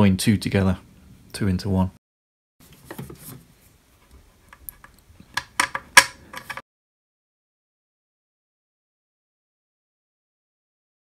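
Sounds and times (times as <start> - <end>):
small parts clicking and clacking: 4.5 - 6.6.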